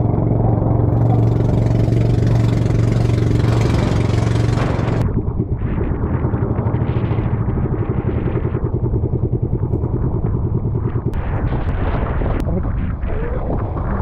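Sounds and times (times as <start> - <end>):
small boat engine chugging: 0.0 - 11.3.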